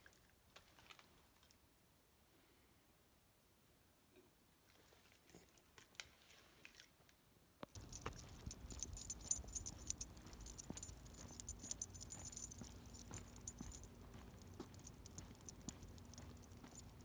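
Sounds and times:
metal dog tags jingling: 7.8 - 17.0.

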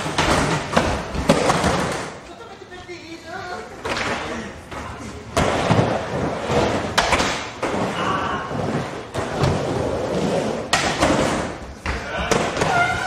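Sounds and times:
skateboard clacks and thuds: 0.0 - 2.2, 5.4 - 7.8, 9.1 - 13.0
skateboard wheels rolling on wood: 3.8 - 11.6.

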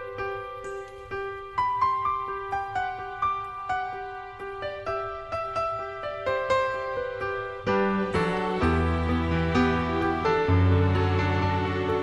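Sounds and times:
gentle slow piano music: 0.0 - 12.0.

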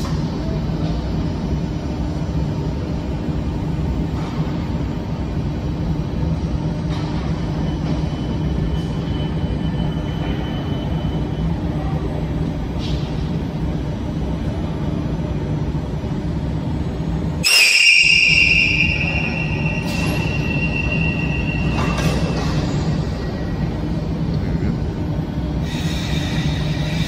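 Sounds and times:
train equipment low hum: 0.0 - 27.0
high-pitched signal tone: 17.4 - 22.4.

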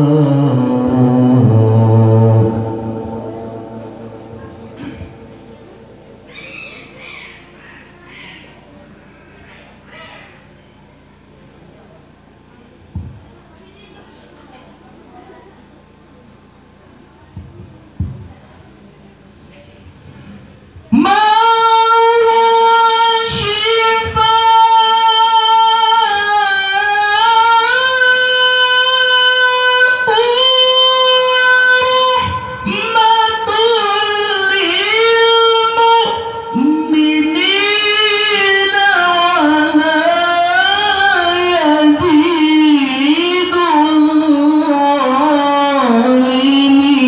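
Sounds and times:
man reciting melodically: 0.0 - 7.0, 20.9 - 47.0.

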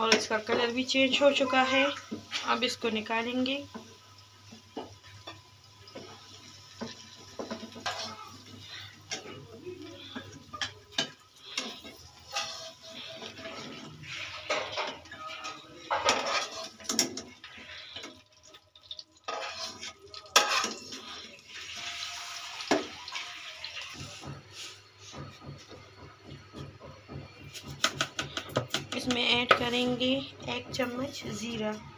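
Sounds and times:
wooden spatula scraping a wok: 6.0 - 18.2, 19.3 - 25.9.

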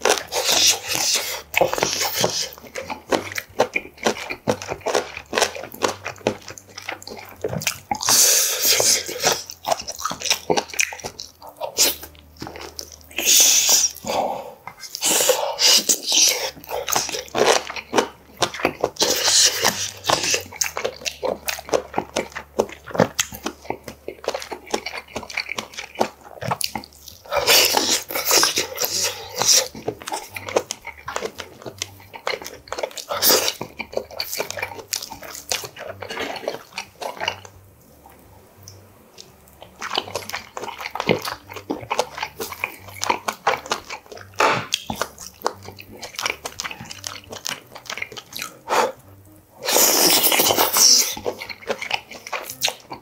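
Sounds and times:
airy mouth noise bursts: 0.0 - 2.8, 8.0 - 9.5, 13.1 - 17.3, 48.4 - 51.4
man chewing wetly: 0.0 - 53.0.

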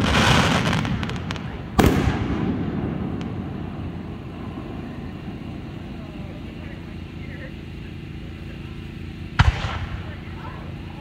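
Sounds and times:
firework bang: 0.0 - 6.7, 9.3 - 10.3
fireworks crackling: 0.0 - 11.0.

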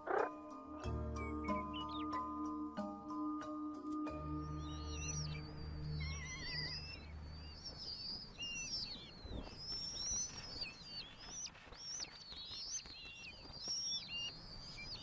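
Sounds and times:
hawk nestlings whistling calls: 4.2 - 15.0.

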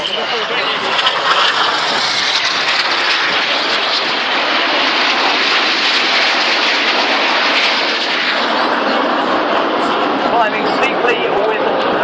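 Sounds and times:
jets flying past: 0.0 - 12.0.

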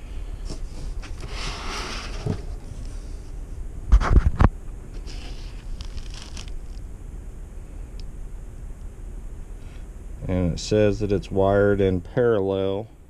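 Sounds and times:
foam and cardboard rustling: 0.4 - 3.2, 4.9 - 6.8.

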